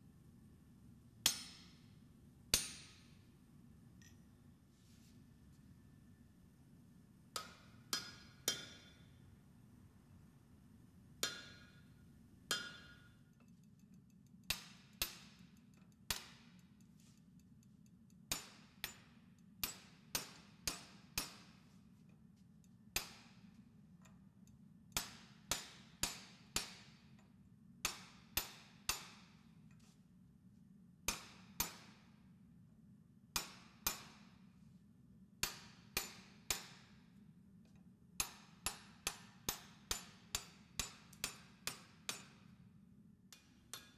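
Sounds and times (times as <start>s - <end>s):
hammer striking steel on anvil: 1.2s - 1.8s, 2.5s - 3.2s, 7.3s - 9.2s, 11.2s - 13.3s, 14.5s - 16.8s, 18.3s - 21.7s, 22.9s - 24.2s, 25.0s - 29.4s, 31.1s - 32.2s, 33.4s - 34.5s, 35.4s - 37.1s, 38.2s - 42.6s, 43.3s - 43.9s.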